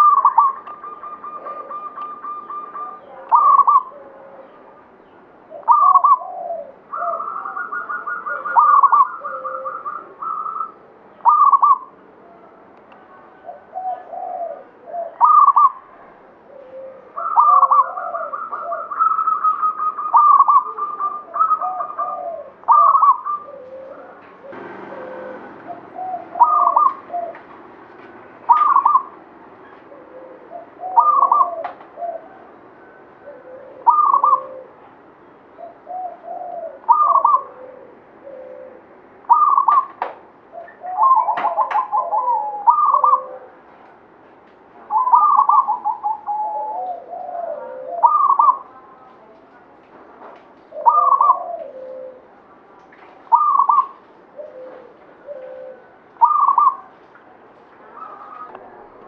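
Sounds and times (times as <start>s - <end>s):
dove cooing: 0.0s - 12.0s, 13.1s - 43.8s, 44.9s - 49.4s, 50.6s - 52.6s, 53.2s - 57.0s, 57.8s - 59.0s.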